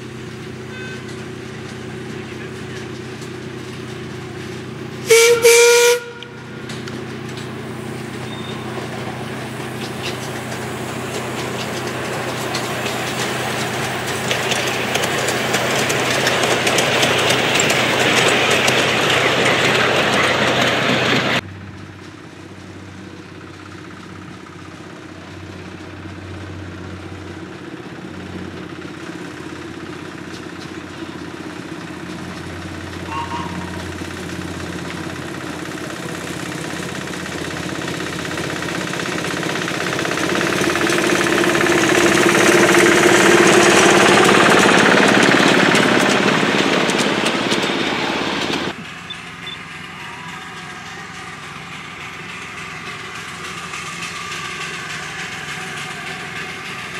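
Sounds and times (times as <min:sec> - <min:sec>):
train rumbling on rails: 0:00.0 - 0:56.9
miniature train whistle: 0:00.6 - 0:01.4, 0:05.0 - 0:06.7, 0:08.2 - 0:08.8, 0:33.0 - 0:34.1, 0:48.8 - 0:51.8.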